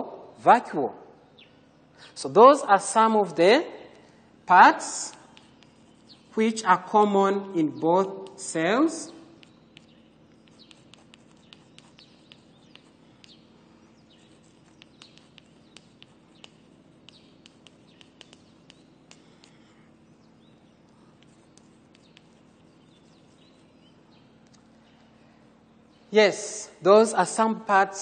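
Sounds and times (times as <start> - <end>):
low steady hum: 0.0 - 28.0
chalk writing on blackboard: 4.8 - 7.0, 8.0 - 24.3.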